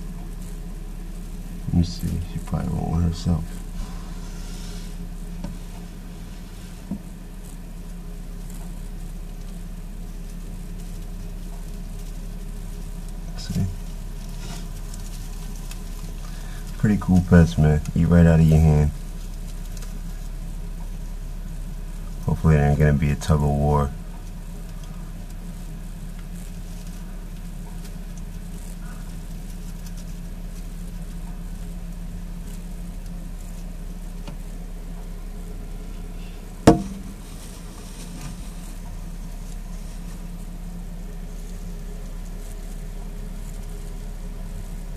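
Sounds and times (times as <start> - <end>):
low hum with faint hiss: 0.0 - 44.9
paper bedding crackling: 0.0 - 44.9
low bump: 36.4 - 39.0
sharp knock: 36.7 - 37.1.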